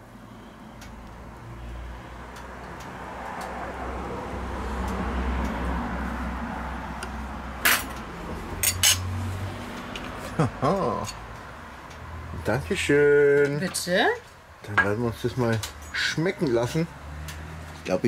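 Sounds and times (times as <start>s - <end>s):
tableware clinking: 7.6s - 8.0s, 8.6s - 9.1s.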